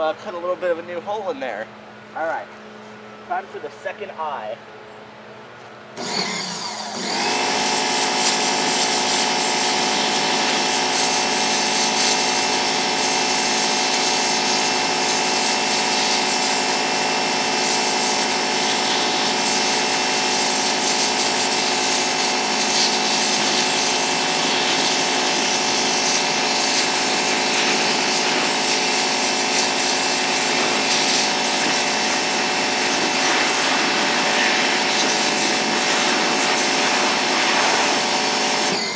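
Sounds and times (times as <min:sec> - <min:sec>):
power washer spraying: 0:06.0 - 0:38.9
spray hiss: 0:07.2 - 0:31.8.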